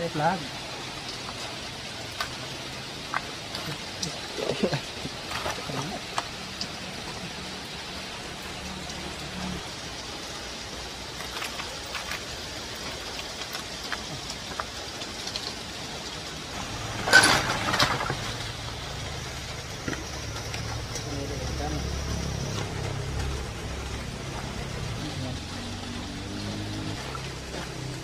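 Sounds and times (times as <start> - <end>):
metal tools clinking: 17.0 - 18.4.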